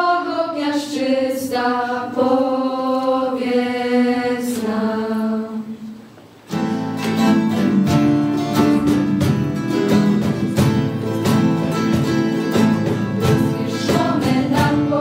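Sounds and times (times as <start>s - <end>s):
group singing a chord: 0.0s - 6.0s, 12.9s - 15.0s
acoustic guitar strumming: 6.5s - 15.0s.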